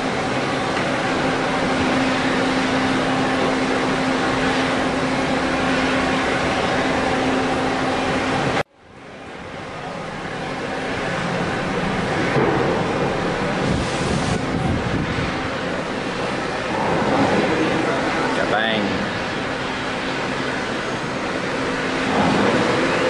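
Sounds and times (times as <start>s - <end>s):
broad noisy rush: 0.0s - 23.0s
mechanical hum: 0.0s - 23.0s.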